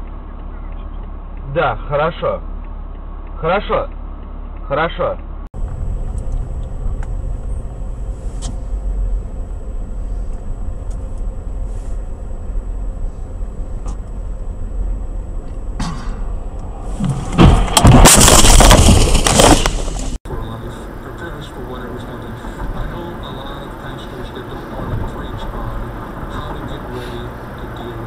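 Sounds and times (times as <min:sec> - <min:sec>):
car interior rumble: 0:00.0 - 0:28.0
car crash: 0:15.8 - 0:28.0.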